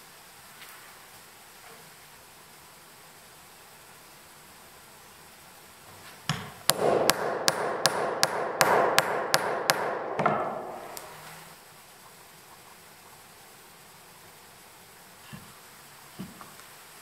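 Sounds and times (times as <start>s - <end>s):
hatchet hammering steel punch: 6.3s - 11.1s.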